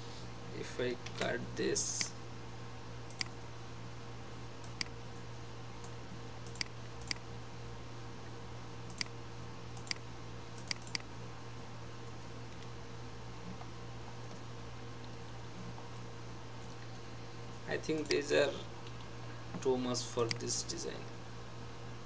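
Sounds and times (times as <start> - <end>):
computer control clicks: 17.9 - 18.2.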